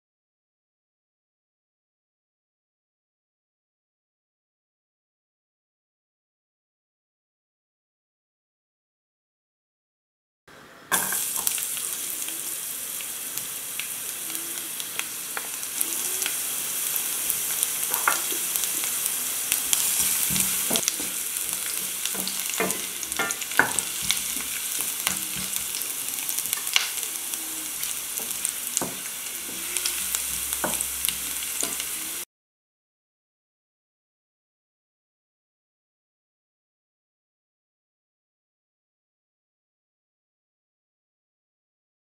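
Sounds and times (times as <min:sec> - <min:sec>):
garlic sizzling in oil: 0:10.9 - 0:32.3
wooden spatula stirring: 0:17.3 - 0:32.0.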